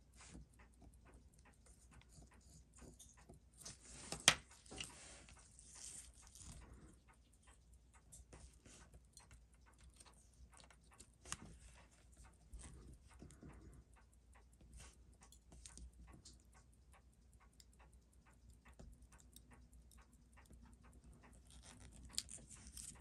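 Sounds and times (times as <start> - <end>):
small clicks and taps: 0.0 - 23.0
scratchy rustle: 4.8 - 6.7.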